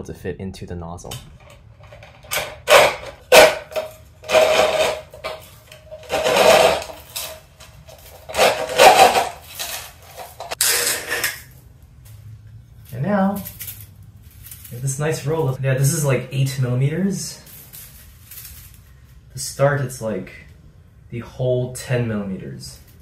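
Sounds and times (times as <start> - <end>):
plastic bottle crackling and scraping: 1.9 - 11.3.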